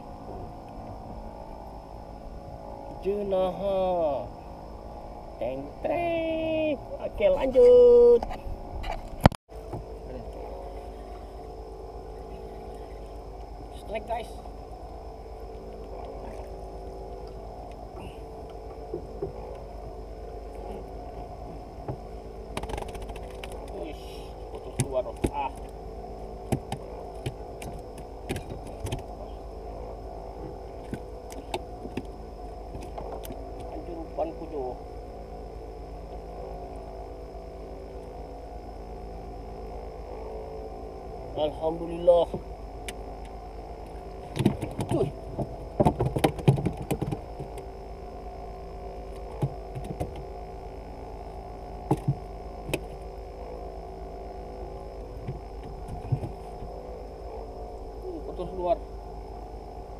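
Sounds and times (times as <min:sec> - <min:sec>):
motor hum: 0:00.0 - 0:59.9
fishing rod clicks and knocks: 0:21.9 - 0:23.8
clicks and knocks on plastic: 0:44.3 - 0:47.6.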